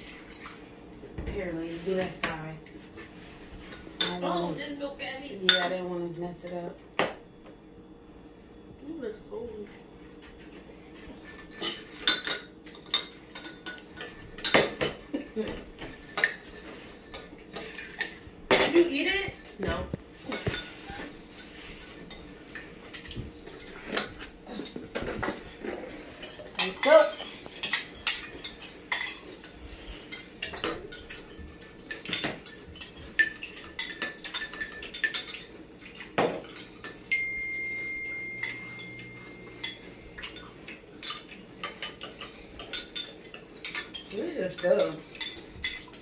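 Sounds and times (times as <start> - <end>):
spoons clinking against bowls: 3.6 - 4.5, 5.4 - 5.8, 11.1 - 19.6, 20.2 - 46.0
steady high tone: 37.1 - 39.9.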